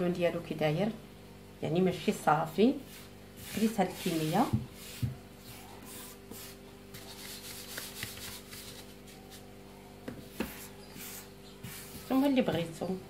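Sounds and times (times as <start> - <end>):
faint steady hum: 0.0 - 13.0
hands rubbing flour in dish: 2.8 - 9.5, 10.5 - 12.8.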